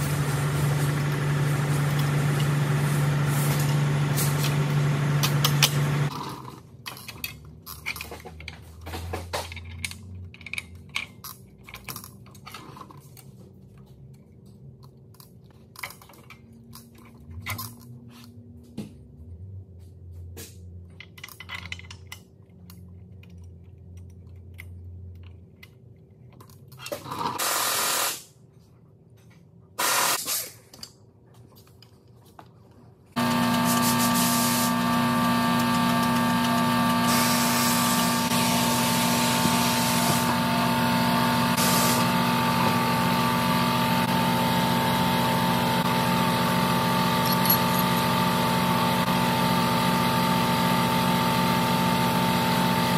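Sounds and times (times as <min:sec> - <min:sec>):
air tool bursts: 0:27.4 - 0:28.3, 0:29.8 - 0:30.6, 0:33.6 - 0:34.8, 0:37.0 - 0:40.4, 0:41.5 - 0:42.2.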